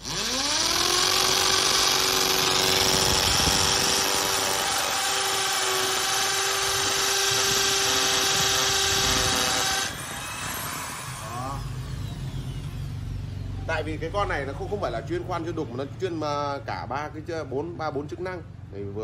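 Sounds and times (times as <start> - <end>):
impact drill drilling into concrete: 0.0 - 13.0.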